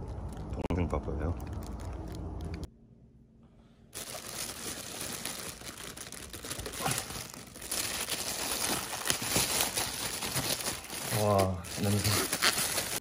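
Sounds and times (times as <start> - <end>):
plastic bag crinkling: 1.3 - 2.3, 4.0 - 13.0.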